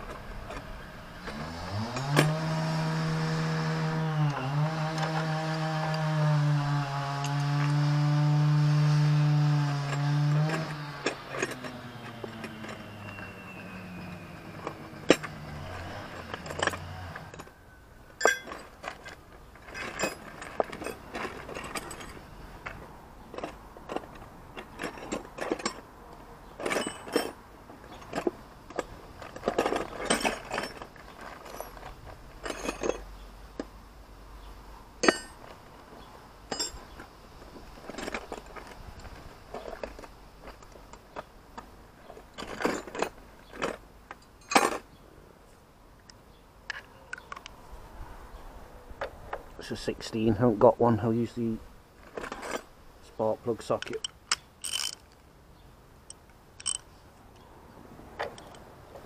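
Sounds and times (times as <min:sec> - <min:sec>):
metal tools clinking: 0:09.7 - 0:33.7, 0:35.0 - 0:35.6, 0:36.5 - 0:41.3, 0:42.0 - 0:45.0, 0:52.0 - 0:55.2, 0:56.1 - 0:57.0.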